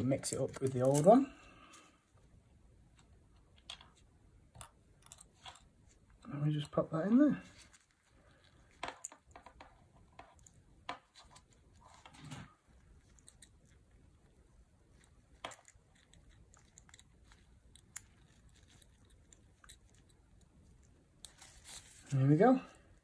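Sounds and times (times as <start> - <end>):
soft rustle: 7.2 - 8.8, 9.4 - 23.0.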